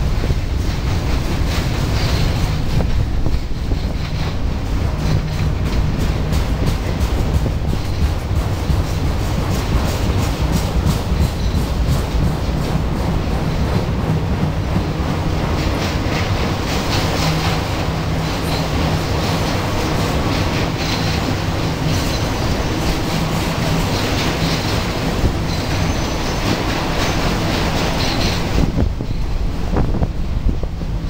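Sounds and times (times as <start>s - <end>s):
freight train rolling past: 0.0s - 31.0s
wheels clacking over rail joints: 0.0s - 31.0s.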